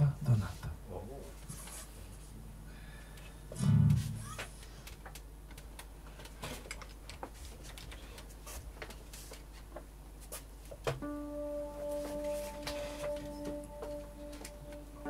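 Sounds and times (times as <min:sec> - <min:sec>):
low guitar note: 0:03.6 - 0:04.2, 0:11.0 - 0:15.0
guitar handling clicks and taps: 0:12.0 - 0:14.8.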